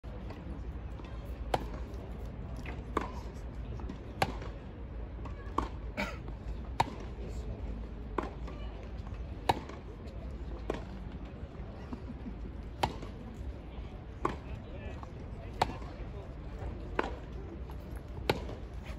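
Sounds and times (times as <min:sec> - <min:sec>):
tennis ball hit by rackets: 0:12.8 - 0:13.1, 0:16.9 - 0:18.9.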